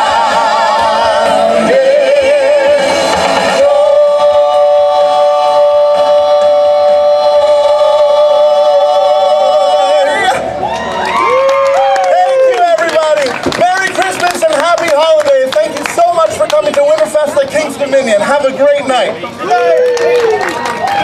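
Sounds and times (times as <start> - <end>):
singers singing in harmony: 0.0 - 10.5
audience cheering: 10.6 - 14.3, 19.4 - 21.0.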